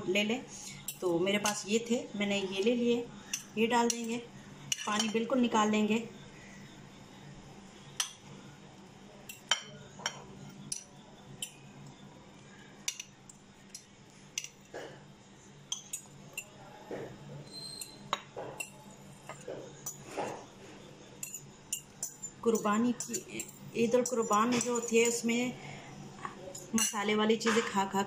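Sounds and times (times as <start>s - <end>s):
metal spoon clinking on china bowl: 4.7s - 5.3s, 9.2s - 11.6s, 12.8s - 14.7s, 15.7s - 16.6s, 17.7s - 20.0s, 21.2s - 25.3s, 26.5s - 27.6s.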